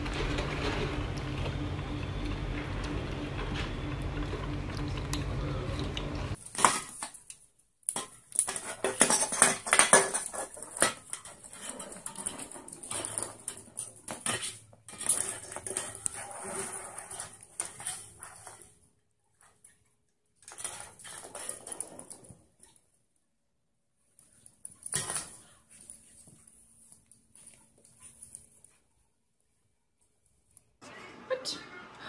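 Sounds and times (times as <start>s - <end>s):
steady low hum: 0.0s - 6.4s.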